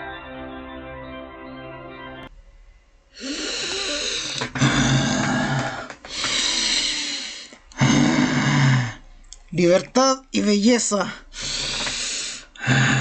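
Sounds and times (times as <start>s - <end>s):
man breathing heavily: 3.2s - 9.0s, 11.2s - 13.0s.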